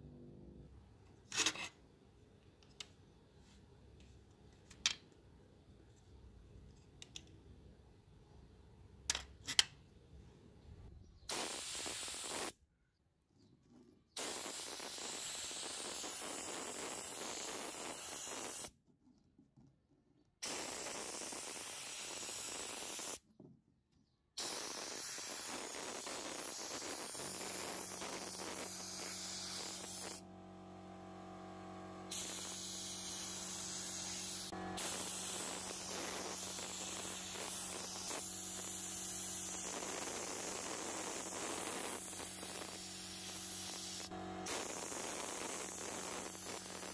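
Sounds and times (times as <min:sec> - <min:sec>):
spray paint hissing bursts: 0:11.2 - 0:12.6, 0:14.2 - 0:18.7, 0:20.4 - 0:23.2, 0:24.4 - 0:30.2, 0:32.1 - 0:46.9.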